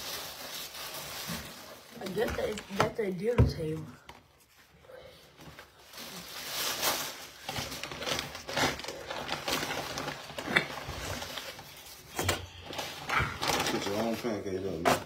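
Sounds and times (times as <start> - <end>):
plastic packaging crinkling: 0.0 - 3.2, 5.4 - 15.0.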